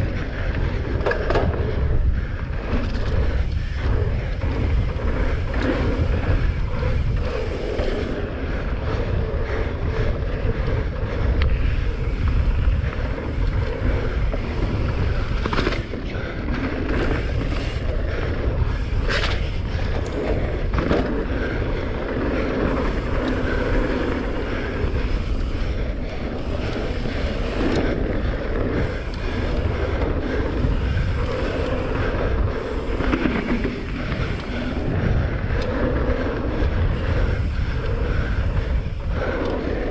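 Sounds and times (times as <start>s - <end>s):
bike rattling: 0.0s - 39.9s
bike tyres rolling over dirt: 0.0s - 39.9s
wind buffeting microphone: 0.0s - 39.9s.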